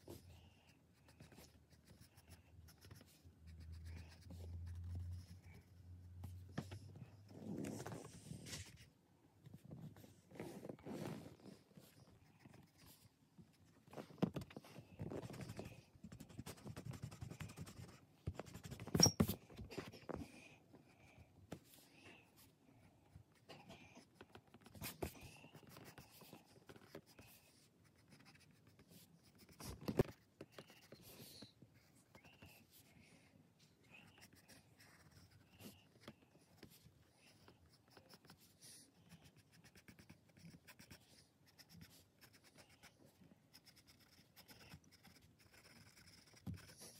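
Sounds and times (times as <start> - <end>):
pencil scratching on paper: 0.9 - 8.8, 14.4 - 20.4, 23.3 - 32.9, 33.9 - 46.9.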